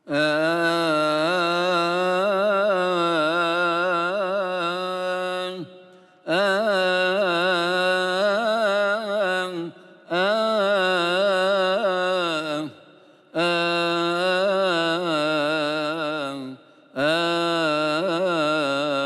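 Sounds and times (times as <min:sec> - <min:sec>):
man chanting a hymn: 0:00.0 - 0:19.0.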